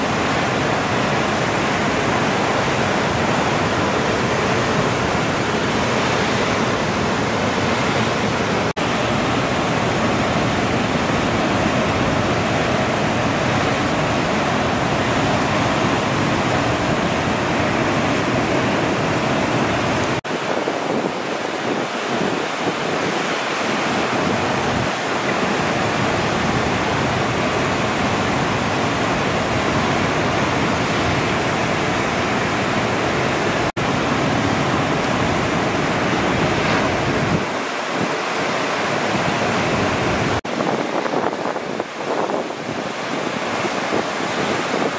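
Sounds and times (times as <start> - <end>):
ocean surf breaking: 0.0 - 44.9.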